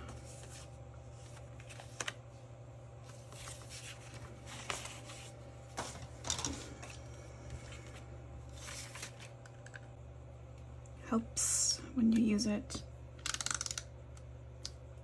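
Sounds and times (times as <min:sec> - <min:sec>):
paper rustling: 0:00.0 - 0:02.2, 0:03.0 - 0:09.4
steady low hum: 0:00.0 - 0:15.0.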